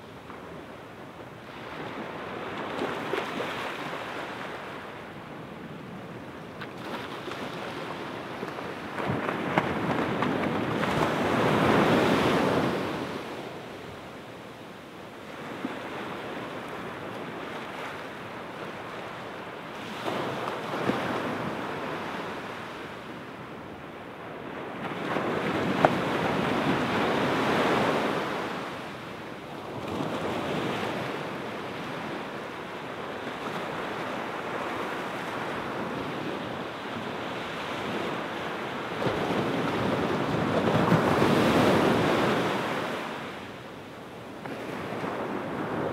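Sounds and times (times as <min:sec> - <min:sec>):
wind noise on microphone: 0:00.0 - 0:17.9, 0:18.5 - 0:45.9
waves washing on sand beach: 0:00.1 - 0:45.9.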